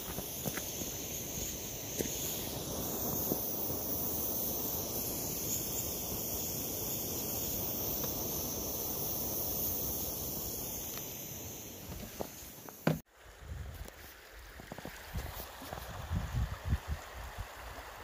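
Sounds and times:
stove burner flame rushing: 0:00.0 - 0:13.1.

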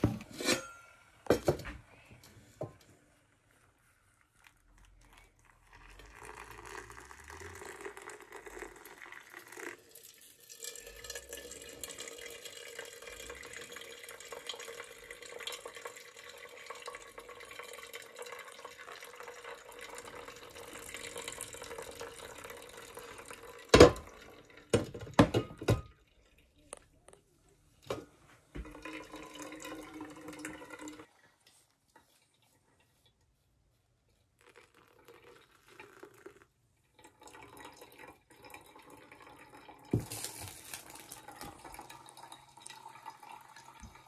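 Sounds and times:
water running into container: 0:04.2 - 0:27.1, 0:28.6 - 0:31.1, 0:34.3 - 0:44.0.

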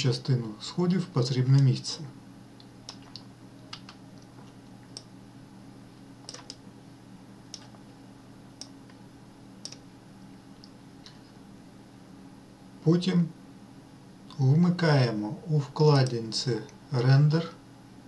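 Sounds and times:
faint low hum: 0:00.0 - 0:18.0
mouse and keyboard clicks: 0:06.3 - 0:06.6.

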